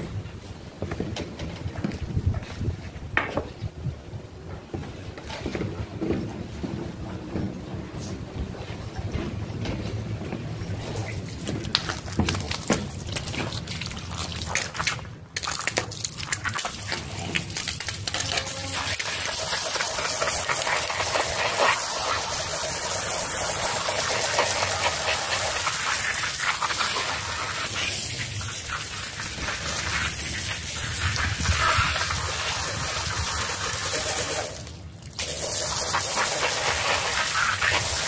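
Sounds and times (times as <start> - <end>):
water gushing onto a rug: 11.4 - 38.0.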